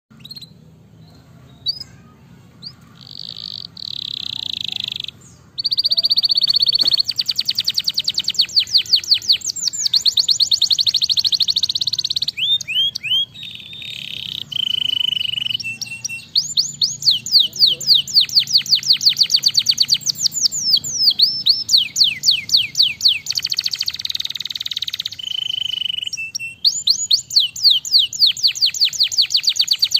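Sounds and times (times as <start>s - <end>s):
canary singing: 0.1s - 29.9s.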